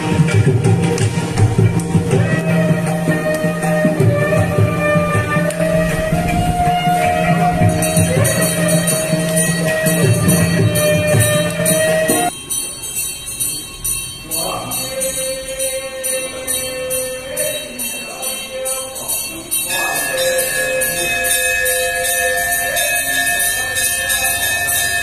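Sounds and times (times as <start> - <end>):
wandering melody: 0.0 - 18.3
jingling bell beat: 0.0 - 25.0
long held high note: 2.0 - 12.4.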